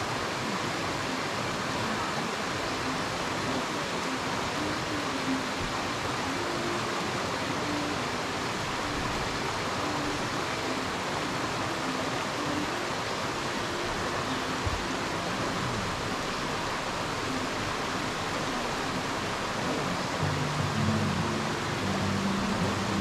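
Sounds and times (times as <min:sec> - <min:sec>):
waterfall rushing: 0:00.0 - 0:23.0.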